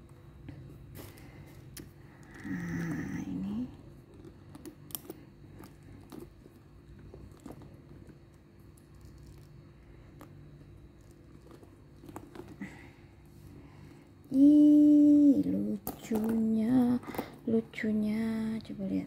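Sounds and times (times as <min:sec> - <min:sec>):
steady low hum: 0:00.0 - 0:19.0
person humming: 0:02.3 - 0:03.7, 0:14.3 - 0:17.1.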